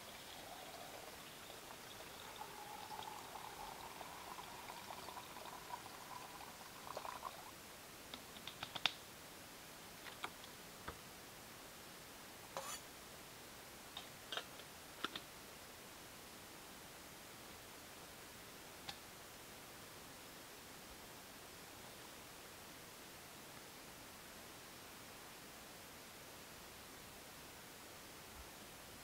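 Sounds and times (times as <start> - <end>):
liquid pouring into a cup: 0.0 - 7.6.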